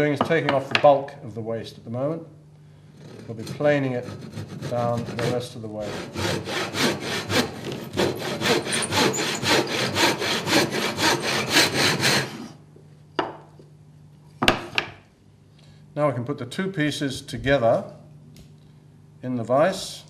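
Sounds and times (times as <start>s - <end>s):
hand saw cutting wood: 3.0s - 12.6s.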